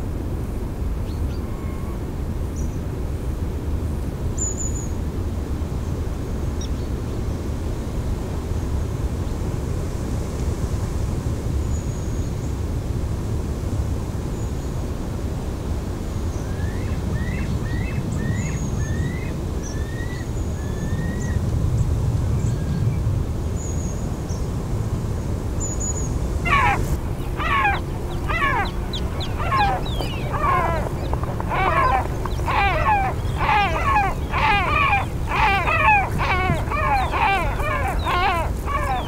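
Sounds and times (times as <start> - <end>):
low background rumble: 26.0 - 39.0
small birds chirping: 26.0 - 39.0
eagle yelping calls: 26.4 - 39.0.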